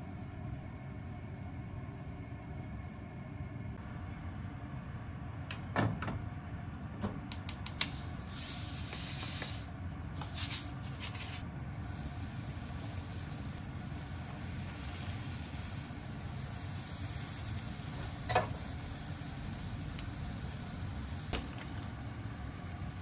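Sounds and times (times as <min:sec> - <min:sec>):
steady low hum: 0:00.0 - 0:23.0
burner igniter clicking: 0:07.0 - 0:07.9
papery rustles: 0:10.1 - 0:11.4
pot set down on grate: 0:18.2 - 0:18.6.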